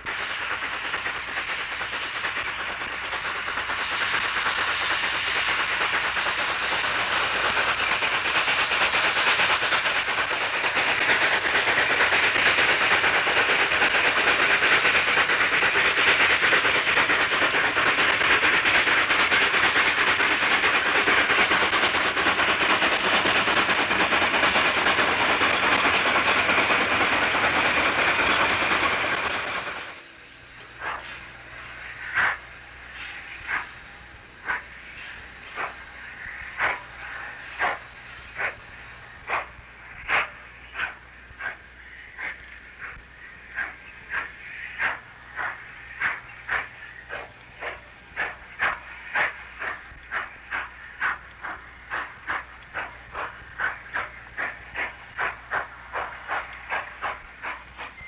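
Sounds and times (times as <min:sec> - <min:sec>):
rolling freight cars: 0:00.0 - 0:58.0
steam locomotive exhaust: 0:00.0 - 0:58.0.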